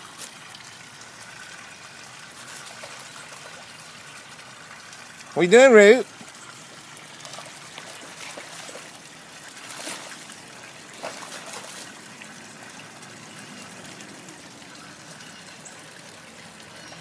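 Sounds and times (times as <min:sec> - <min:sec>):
running water trickling: 0:00.0 - 0:17.0
dog splashing in puddle: 0:02.2 - 0:04.2, 0:07.0 - 0:12.2.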